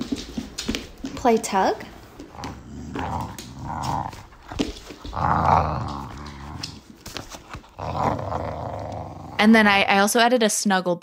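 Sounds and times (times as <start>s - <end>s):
dog growling in play: 2.3s - 7.0s, 7.6s - 9.6s.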